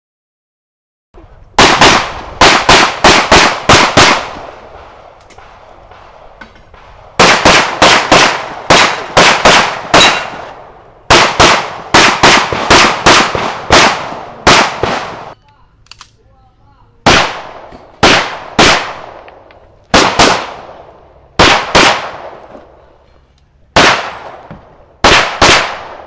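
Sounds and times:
handgun shots: 7.2s - 10.5s.

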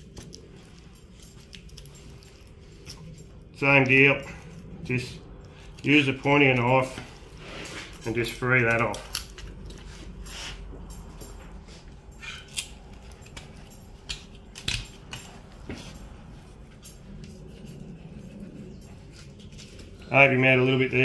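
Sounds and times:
low steady hum: 0.0s - 21.0s
knife scraping bone: 12.2s - 16.0s.

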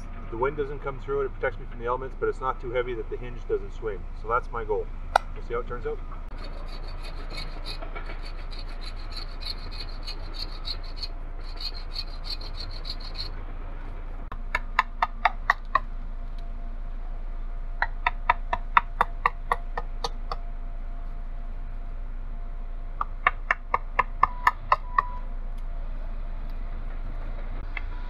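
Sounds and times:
bow saw cutting wood: 6.3s - 13.3s.

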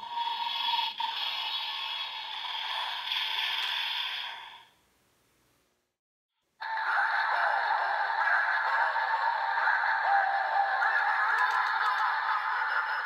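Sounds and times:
toy electronic sound effect: 6.6s - 13.0s.

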